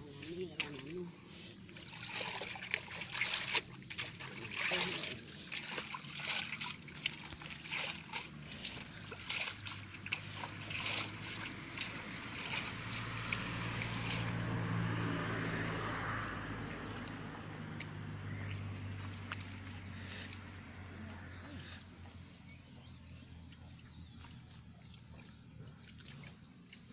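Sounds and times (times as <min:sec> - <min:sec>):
water splashing and sloshing: 0:00.0 - 0:20.9, 0:23.4 - 0:26.9
low engine-like hum: 0:00.0 - 0:26.9.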